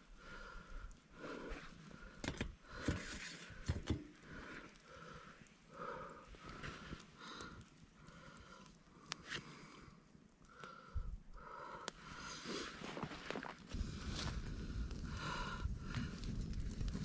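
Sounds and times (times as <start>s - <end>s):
soft breathy sounds: 0.0s - 17.0s
rustling: 12.4s - 14.5s.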